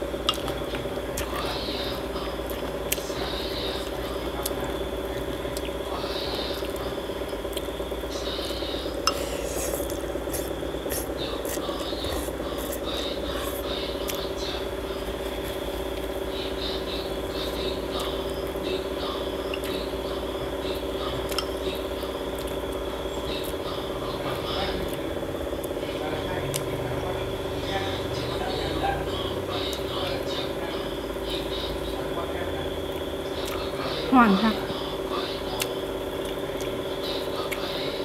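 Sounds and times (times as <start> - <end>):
steady background hum: 0.0 - 38.0
slurping and chewing: 0.2 - 16.2, 35.3 - 38.0.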